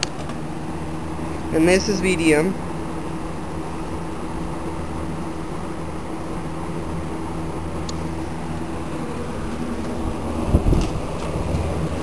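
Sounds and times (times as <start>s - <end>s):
box fan air rush: 0.0s - 12.0s
low motor hum: 0.0s - 12.0s.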